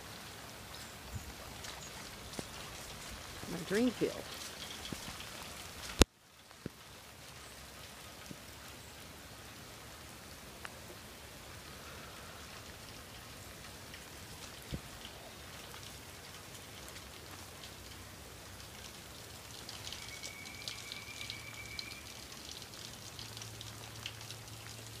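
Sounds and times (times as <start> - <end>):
rain falling on grass and puddles: 0.0 - 25.0
raindrop taps: 1.1 - 8.6, 12.6 - 25.0.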